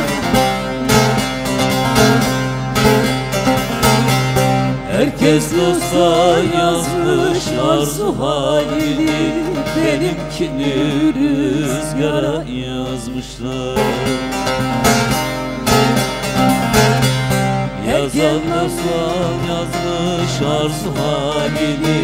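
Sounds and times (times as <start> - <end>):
plucked lute: 0.0 - 22.0
person singing ornamented lines: 4.8 - 14.6, 17.8 - 22.0.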